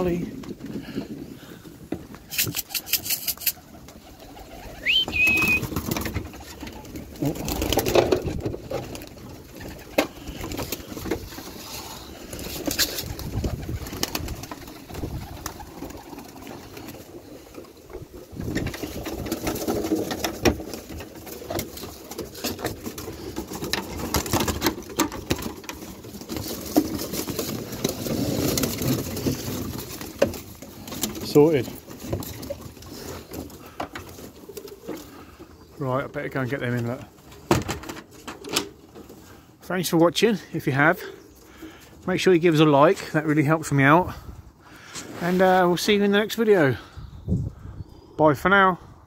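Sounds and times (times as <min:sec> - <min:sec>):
pigeons cooing: 0:00.0 - 0:24.6, 0:32.2 - 0:36.1
wings flapping: 0:02.1 - 0:35.4.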